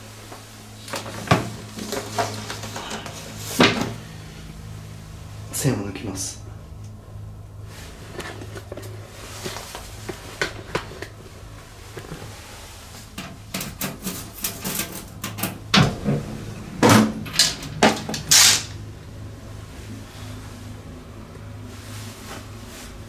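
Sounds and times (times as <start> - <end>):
knocks and clatters: 13.2 - 18.8.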